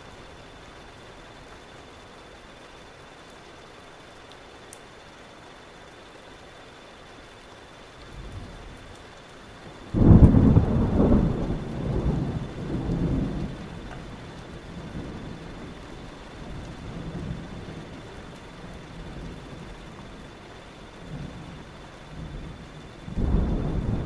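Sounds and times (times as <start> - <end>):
steady rain: 0.0 - 24.0
thunder crackling and rolling: 8.1 - 24.0.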